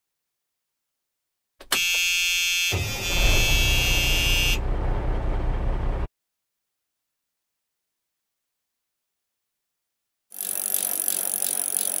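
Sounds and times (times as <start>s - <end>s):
harsh steady tone: 2.7s - 6.1s
noisy rumbling: 2.8s - 6.1s.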